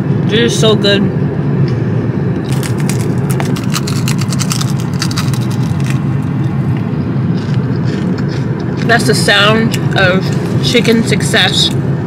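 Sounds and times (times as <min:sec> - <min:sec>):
low rumble of a car: 0:00.0 - 0:12.0
crunching bites of fried chicken: 0:02.4 - 0:06.3, 0:07.3 - 0:08.9.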